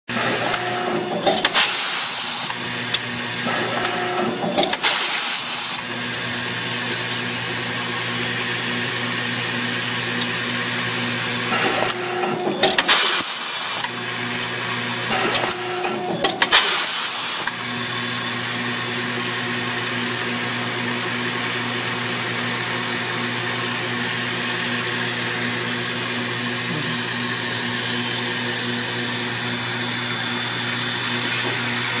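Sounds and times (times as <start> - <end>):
pneumatic press air bursts and clunks: 0.1 - 6.0, 11.4 - 17.6
vibratory feeders humming: 24.9 - 30.7.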